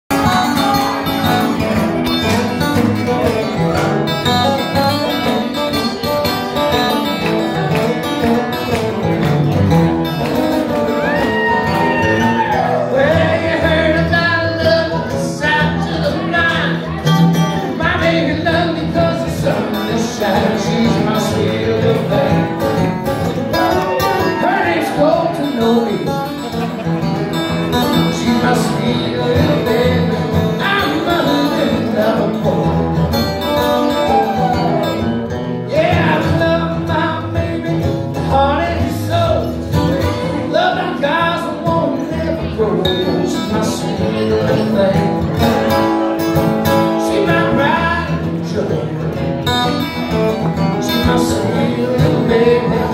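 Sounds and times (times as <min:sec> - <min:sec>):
acoustic guitars playing: 0:00.1 - 0:52.9
man singing into a microphone: 0:11.1 - 0:26.5, 0:27.7 - 0:35.0, 0:35.7 - 0:52.9.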